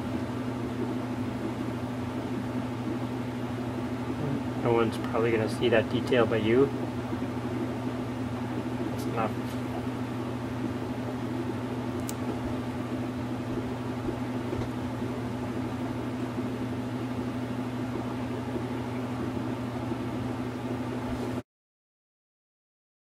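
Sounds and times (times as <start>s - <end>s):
low electrical hum with hiss: 0.0s - 21.4s
light click: 12.0s - 12.2s.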